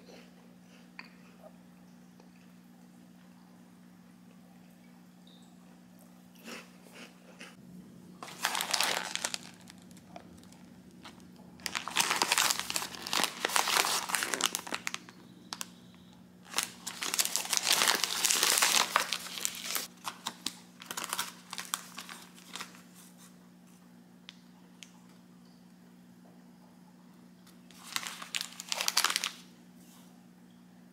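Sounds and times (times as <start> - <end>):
crinkly wrapper rustling: 8.2 - 15.7, 16.4 - 23.2, 27.7 - 29.5.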